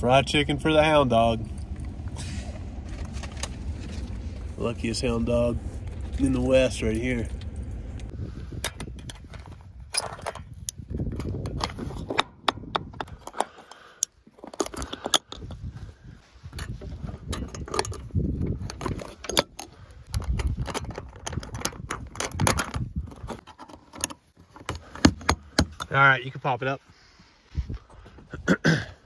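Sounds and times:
low rumble: 0:00.0 - 0:10.0
carabiners clinking: 0:02.7 - 0:15.7, 0:16.4 - 0:26.0
metal roof latches clacking open: 0:18.7 - 0:25.9.

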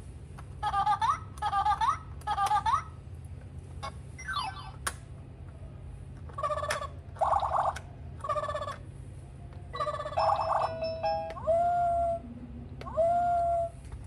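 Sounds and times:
electronic toy sound effects: 0:03.8 - 0:04.8, 0:06.3 - 0:08.8, 0:09.7 - 0:12.2, 0:12.8 - 0:13.7.

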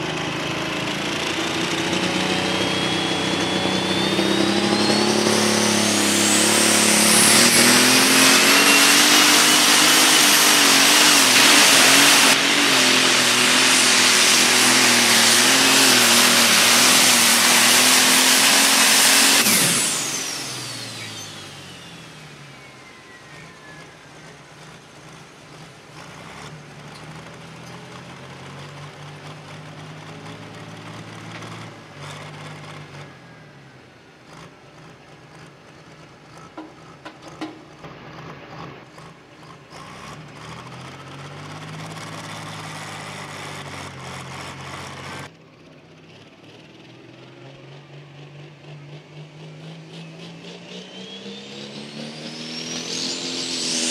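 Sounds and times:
high turbo whine: 0:00.0 - 0:53.9
tractor diesel engine at full throttle: 0:00.0 - 0:53.9.

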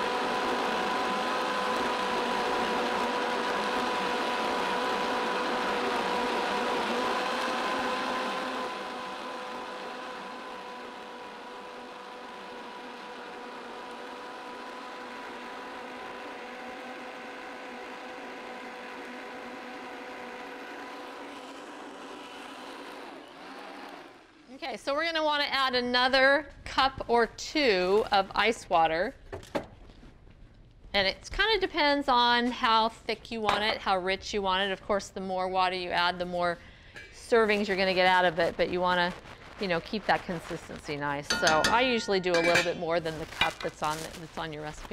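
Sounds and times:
blender motor whining: 0:00.0 - 0:24.5.

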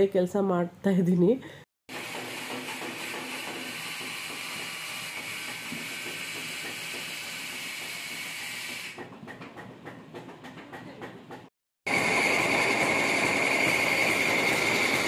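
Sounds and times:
spice grinding mill running: 0:01.9 - 0:08.9, 0:11.9 - 0:15.0.

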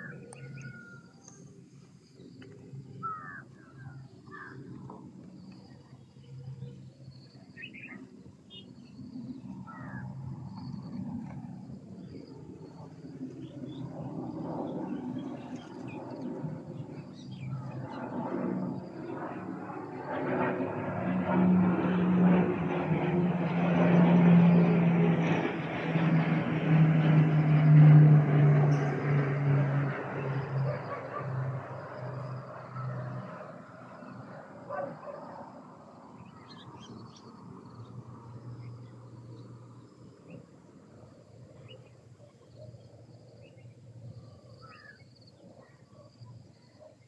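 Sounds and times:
aircraft engine drone: 0:00.0 - 0:47.0
faint bird chirps: 0:05.4 - 0:11.0.

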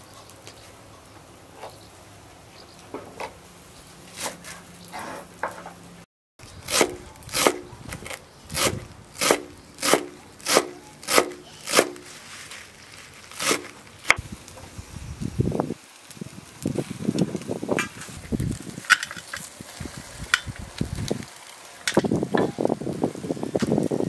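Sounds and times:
knife chopping on wooden board: 0:08.6 - 0:12.0.

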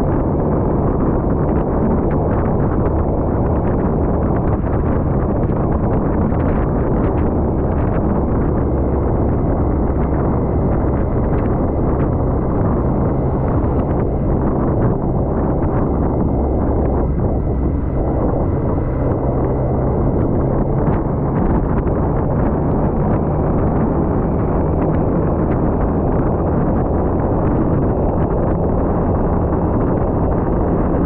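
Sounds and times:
motorcycle engine drone: 0:00.0 - 0:31.0
wind on microphone: 0:00.0 - 0:31.0.

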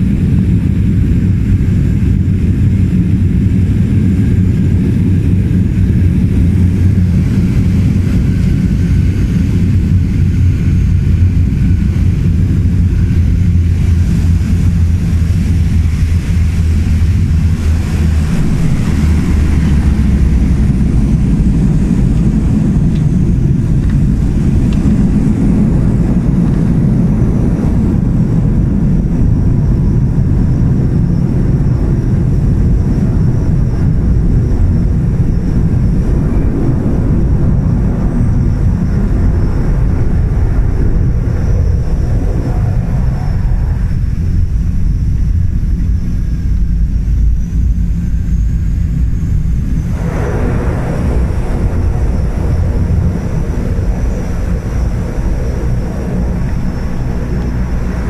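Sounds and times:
turboprop engines droning: 0:00.0 - 0:58.0.

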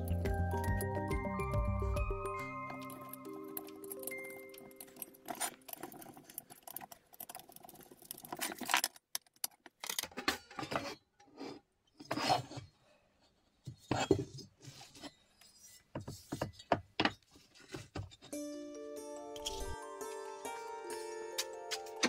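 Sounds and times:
metal scraping and knocking on wood: 0:13.6 - 0:18.4.

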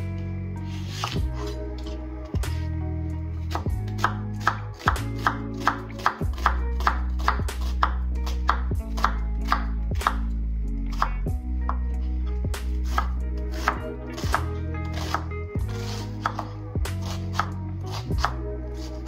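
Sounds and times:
background music: 0:00.0 - 0:19.0
knife chopping on cutting board: 0:00.9 - 0:01.6, 0:03.5 - 0:10.3, 0:12.8 - 0:18.9.

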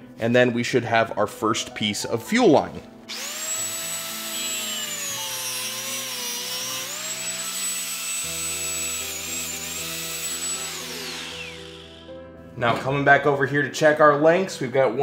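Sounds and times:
angle grinder cutting hose: 0:03.1 - 0:12.0.

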